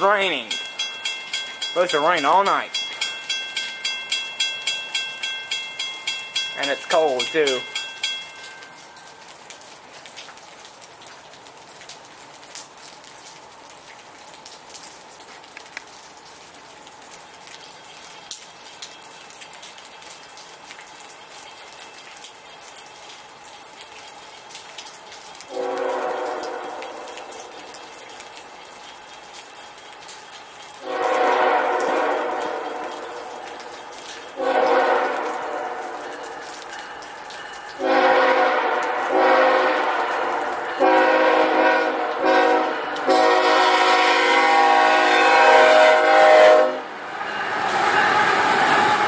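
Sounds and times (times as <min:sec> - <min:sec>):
water dripping: 0:00.0 - 0:44.3
steady rain: 0:00.0 - 0:49.0
locomotive horn blasts: 0:25.5 - 0:27.3, 0:30.8 - 0:33.2, 0:34.4 - 0:36.1, 0:37.8 - 0:46.9.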